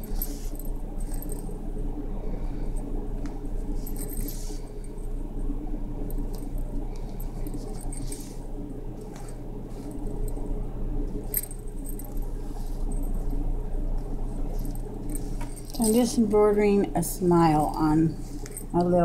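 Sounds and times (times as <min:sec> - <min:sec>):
yarn rustling: 0:00.0 - 0:01.5, 0:06.6 - 0:10.4, 0:11.2 - 0:16.4
steady low hum: 0:00.0 - 0:19.0.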